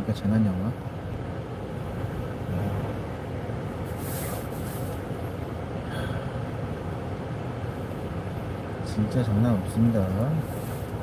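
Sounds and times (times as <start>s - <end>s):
car engine hum: 0.0s - 11.0s
road noise inside car: 0.0s - 11.0s
brief hiss: 3.8s - 5.1s.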